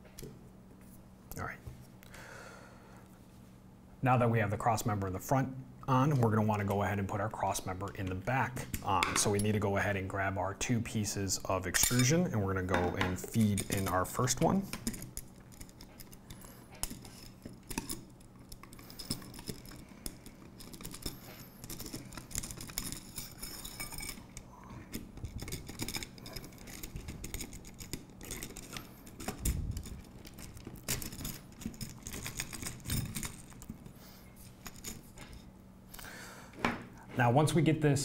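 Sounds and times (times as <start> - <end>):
metal parts clicking and scraping: 11.7 - 35.5.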